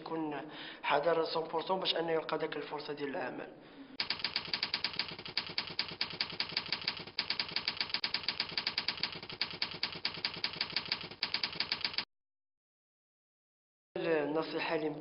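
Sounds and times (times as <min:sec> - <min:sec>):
typewriter keys clacking: 0:04.0 - 0:12.1.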